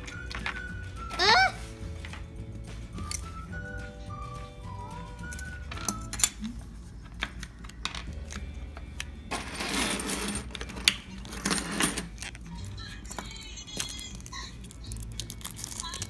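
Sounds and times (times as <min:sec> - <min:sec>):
keys rattling: 0:05.3 - 0:06.4, 0:07.1 - 0:16.0.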